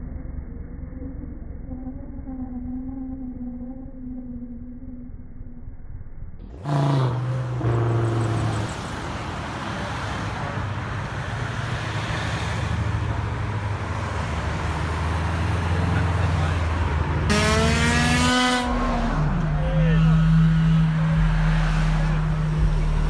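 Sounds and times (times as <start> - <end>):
car engine revving: 6.4 - 23.0
cars driving past: 6.5 - 23.0.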